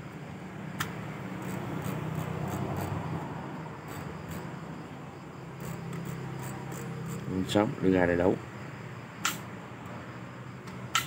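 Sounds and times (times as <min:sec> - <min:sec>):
sharp click: 0:00.8 - 0:01.0, 0:09.2 - 0:09.5, 0:10.6 - 0:11.0.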